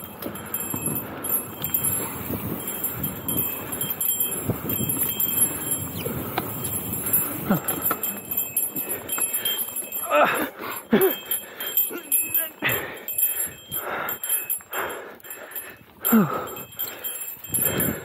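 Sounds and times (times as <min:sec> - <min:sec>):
bike tyre noise on dirt: 0:00.0 - 0:10.4
bike knocking and rattling: 0:00.0 - 0:14.6.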